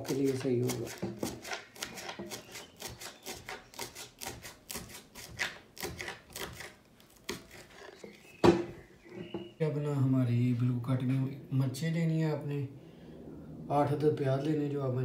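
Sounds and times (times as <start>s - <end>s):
knife chopping on a plate: 0.0s - 7.8s.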